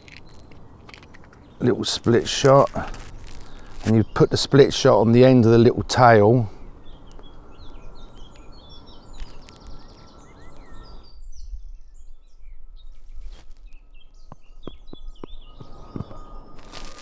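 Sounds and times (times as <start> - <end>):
small clicks: 0.0 - 1.5, 9.2 - 10.7
small birds chirping: 0.0 - 17.0.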